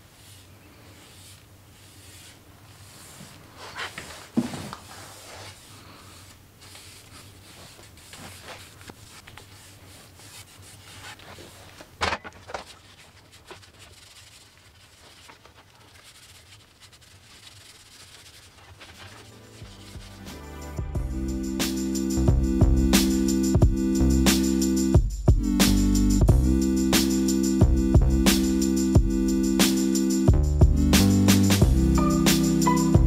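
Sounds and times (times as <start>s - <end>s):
rag rubbing on wooden paddle: 0.2s - 11.7s, 12.5s - 20.4s.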